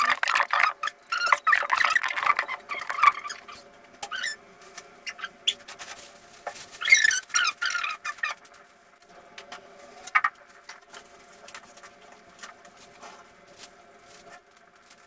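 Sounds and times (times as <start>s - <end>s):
plastic bag crackling: 4.6s - 15.0s.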